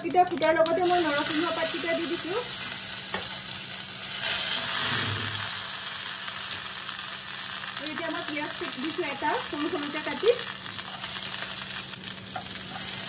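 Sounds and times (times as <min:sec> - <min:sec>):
seeds sizzling in hot oil: 0:00.0 - 0:13.0.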